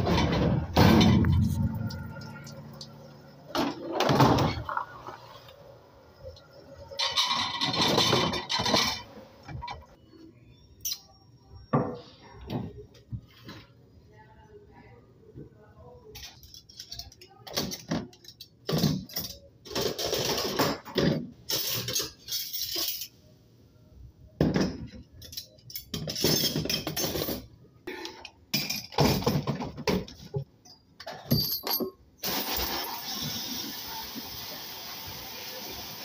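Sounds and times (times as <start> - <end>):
metal cutlery clattering: 7.0 - 9.1, 16.2 - 23.2, 25.1 - 27.5.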